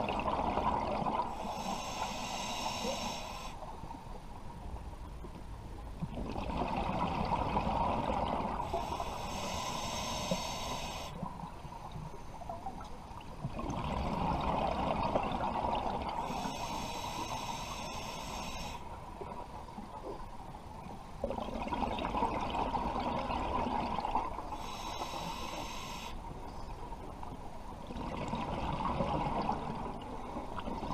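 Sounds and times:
hissing regulator inhales: 0:01.3 - 0:03.6, 0:08.7 - 0:11.3, 0:16.2 - 0:18.9, 0:24.6 - 0:26.2.

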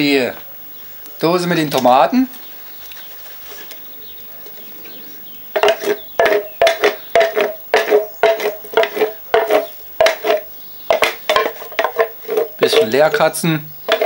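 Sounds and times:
wooden spoon knocking in tin can: 0:05.6 - 0:14.0.

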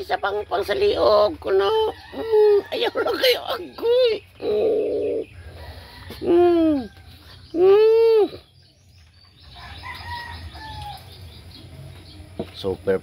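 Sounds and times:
hooting calls: 0:01.6 - 0:08.6.

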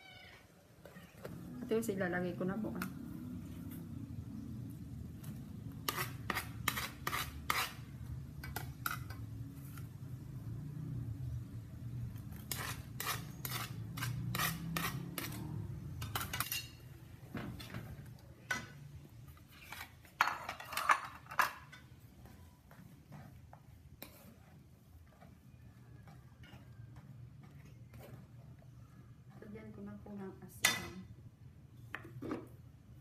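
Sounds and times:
metal utensils clinking on pot: 0:16.0 - 0:16.8, 0:19.6 - 0:22.0, 0:30.6 - 0:31.1.

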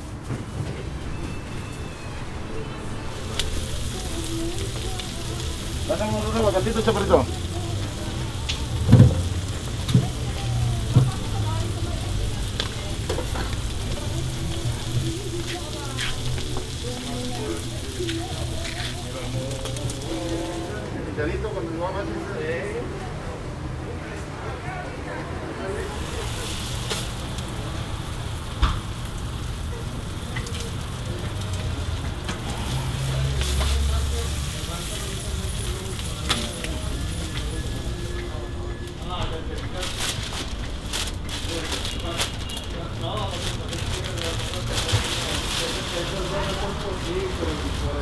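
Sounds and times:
meat sizzling on a griddle: 0:03.1 - 0:20.9, 0:25.8 - 0:38.2, 0:38.9 - 0:48.0.

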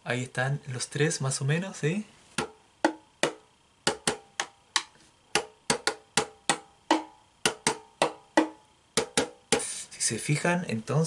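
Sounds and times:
stick tapping tube drums: 0:02.4 - 0:09.7.

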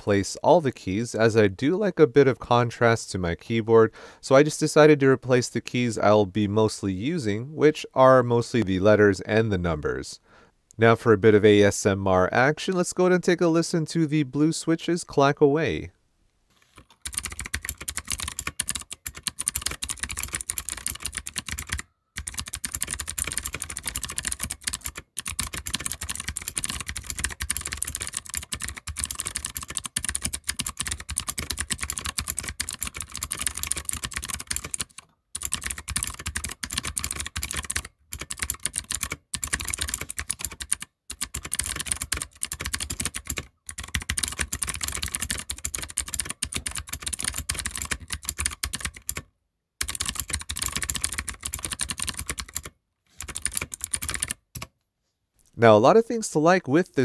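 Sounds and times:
mechanical keyboard typing: 0:16.8 - 0:54.7.

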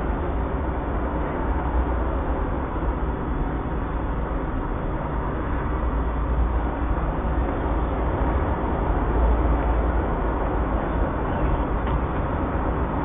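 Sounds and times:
steady deep rumbling noise: 0:00.0 - 0:13.0.

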